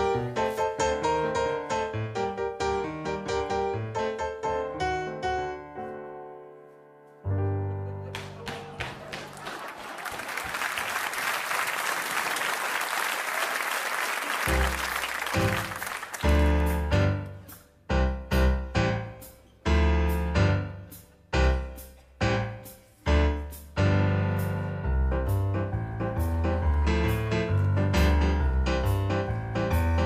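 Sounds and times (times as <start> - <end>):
loud piano chords: 0.0 - 9.3, 14.5 - 30.0
audience applauding: 8.1 - 16.9.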